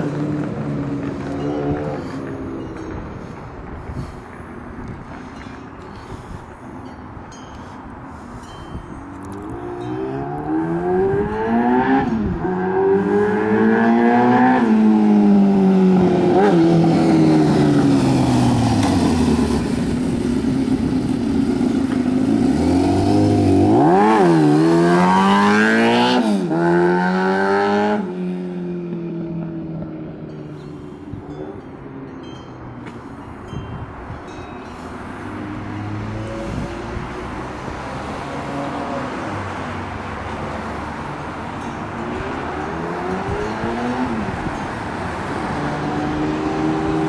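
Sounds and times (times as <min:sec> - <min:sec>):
motorcycle engine revving past: 0:09.7 - 0:29.1.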